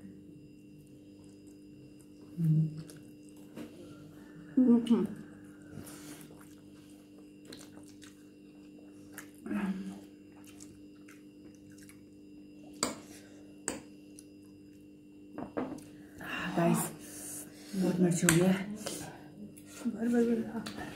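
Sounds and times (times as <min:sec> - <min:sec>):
faint steady hum: 0:00.0 - 0:20.9
chewing: 0:00.7 - 0:03.8, 0:05.0 - 0:12.8.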